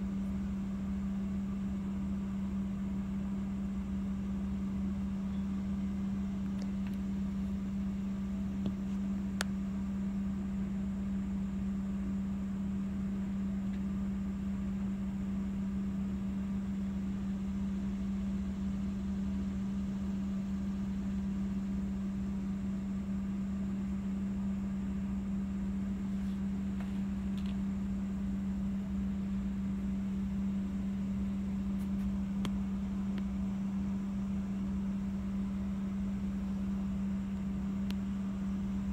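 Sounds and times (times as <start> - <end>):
steady low machine hum: 0.0 - 38.9
faint click: 26.8 - 27.6, 31.8 - 33.3.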